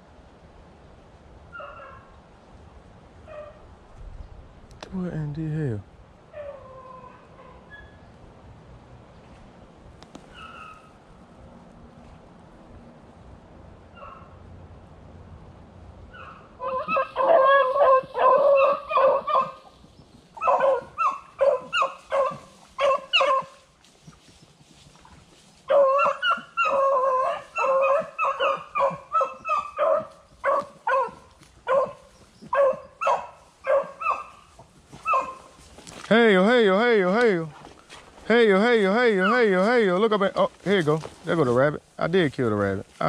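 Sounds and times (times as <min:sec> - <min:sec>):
beagles barking and baying: 0:01.5 - 0:02.2, 0:03.2 - 0:03.7, 0:06.2 - 0:08.2, 0:10.2 - 0:11.2, 0:13.8 - 0:14.4, 0:16.0 - 0:24.6, 0:25.6 - 0:37.4, 0:38.3 - 0:40.9.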